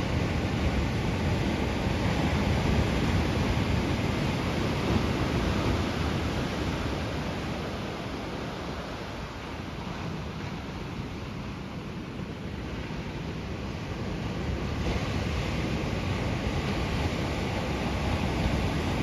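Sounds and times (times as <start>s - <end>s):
ocean surf washing on shore: 0.0s - 19.0s
wind rumbling on microphone: 0.0s - 19.0s.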